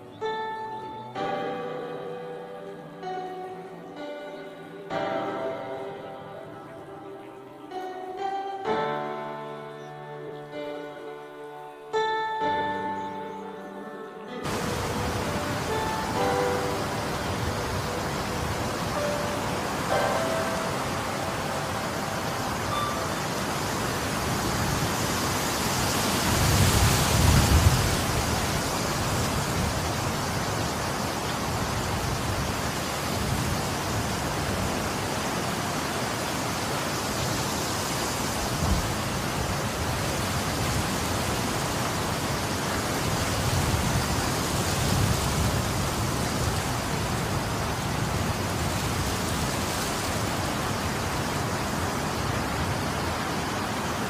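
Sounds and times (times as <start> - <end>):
rain: 0.0 - 5.8, 14.4 - 54.0
storm wind gusting: 14.5 - 54.0
wind buffeting microphone: 14.5 - 54.0.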